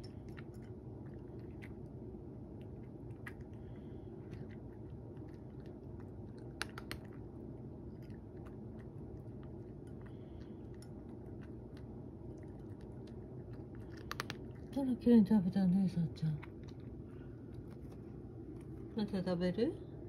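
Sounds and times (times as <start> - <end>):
cat crunching dry kibble: 0.0 - 15.0, 16.0 - 19.0.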